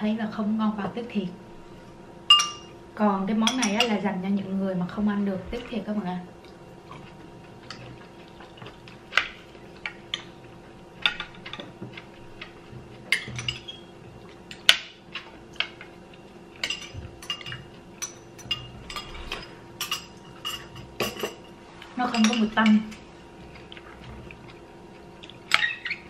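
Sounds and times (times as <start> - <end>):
spoons clinking on glass dishes: 2.3 - 2.7, 13.1 - 13.8, 16.6 - 19.1, 19.8 - 21.5, 22.1 - 22.8.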